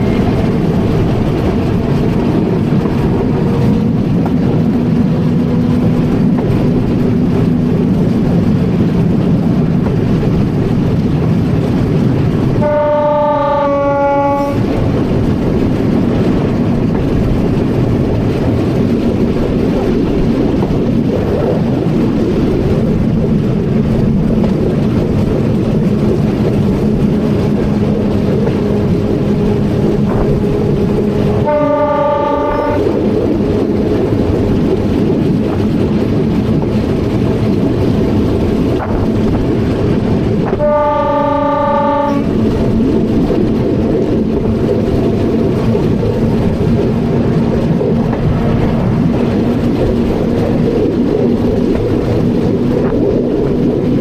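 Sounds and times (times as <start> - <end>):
train rumble and motor hum: 0.0 - 54.0
train horn blast: 12.6 - 14.8, 31.3 - 33.1, 40.5 - 42.4.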